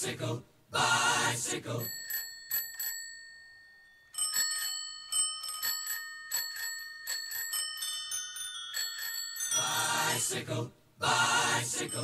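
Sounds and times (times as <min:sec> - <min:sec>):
bicycle bells ringing: 0:01.8 - 0:10.4, 0:11.8 - 0:12.0.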